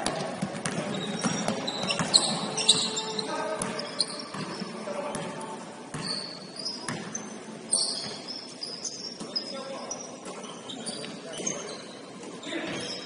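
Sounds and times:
basketball bouncing on gym floor: 0:00.0 - 0:02.9, 0:05.9 - 0:07.2
sneaker squeaks: 0:00.1 - 0:05.3, 0:05.9 - 0:13.0.

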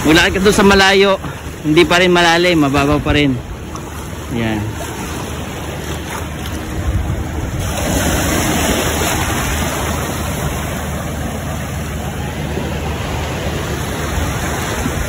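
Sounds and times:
waves washing onto beach: 0:00.0 - 0:15.0
wind buffeting microphone: 0:02.9 - 0:15.0.

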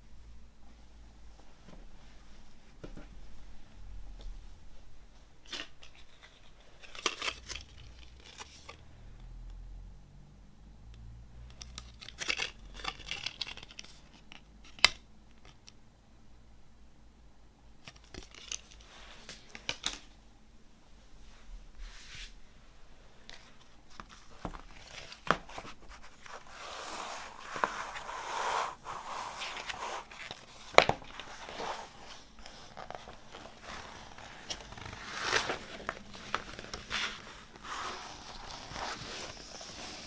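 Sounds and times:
paper rustling and crinkling: 0:23.2 - 0:40.0.

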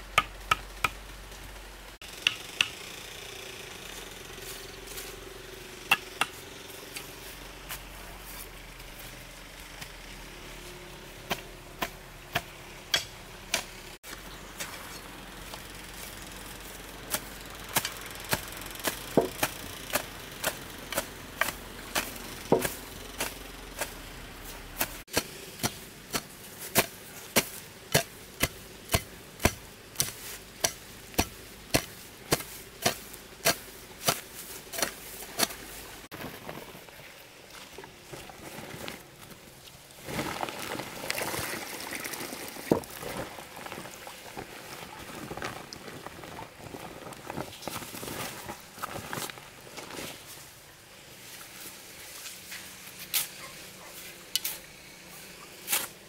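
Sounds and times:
hoe chopping into soil: 0:17.1 - 0:24.0, 0:24.8 - 0:35.8, 0:55.7 - 0:56.0.

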